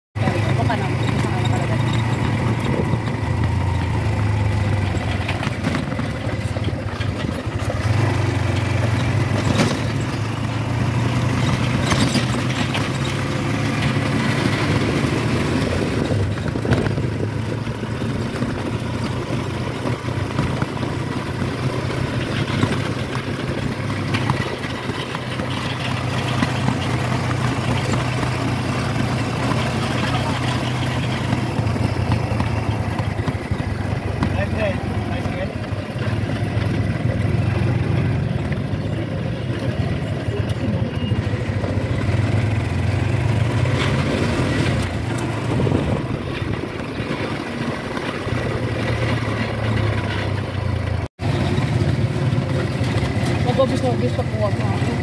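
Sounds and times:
cab knocks and rattles: 0.2s - 39.0s
motorcycle engine running: 0.2s - 55.0s.

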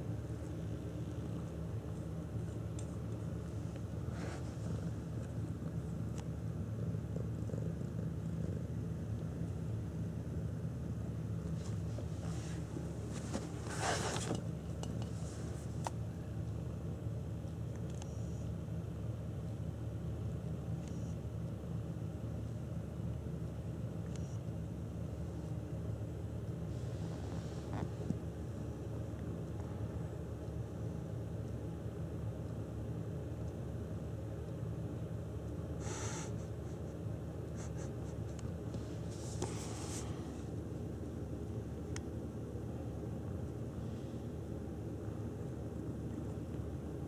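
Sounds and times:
steady low hum: 0.0s - 47.0s
rustle: 11.5s - 16.0s
cat rubbing scratchy rustle: 11.6s - 14.3s, 35.8s - 36.4s, 37.5s - 40.5s.

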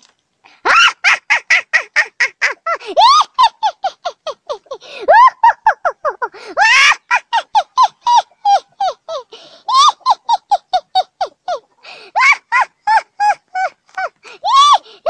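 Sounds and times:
girl laughing hard: 0.6s - 15.0s
girl squealing in-breaths: 14.0s - 15.0s.

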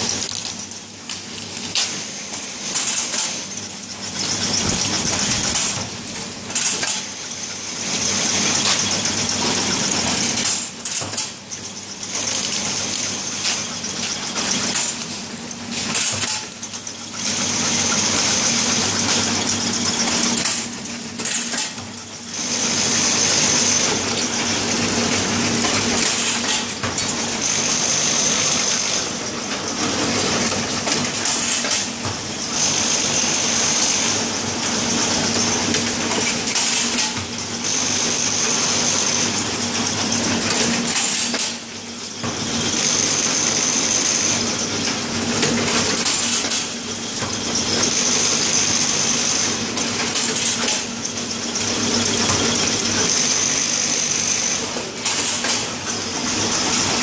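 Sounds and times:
clatter of sticks and metal parts: 0.0s - 3.5s, 4.2s - 5.9s, 6.5s - 7.1s, 8.6s - 11.4s, 12.1s - 15.2s, 15.8s - 17.0s, 18.2s - 22.0s, 24.8s - 27.2s, 28.5s - 32.2s, 35.3s - 37.3s, 40.4s - 41.7s, 44.8s - 49.2s, 49.8s - 50.9s, 51.9s - 57.0s
steady machine hum: 0.0s - 57.0s.

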